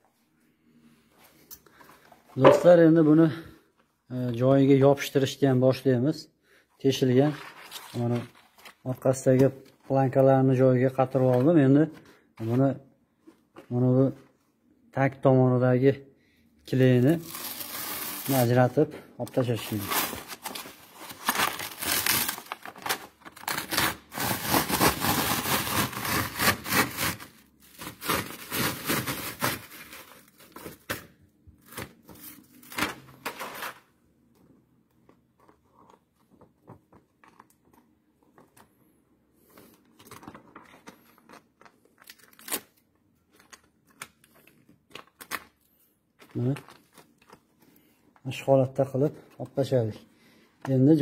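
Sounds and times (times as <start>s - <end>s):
loud crackling and tearing: 19.7s - 30.6s.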